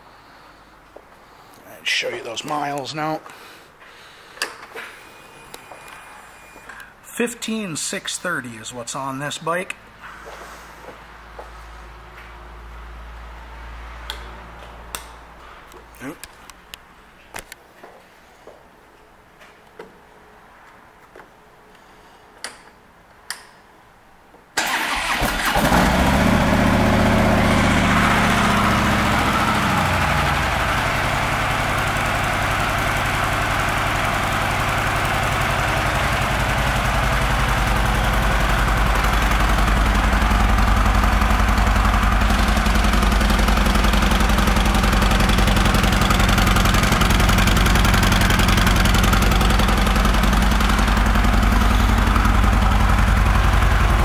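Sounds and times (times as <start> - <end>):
motorcycle engine starting and idling: 24.6 - 54.0.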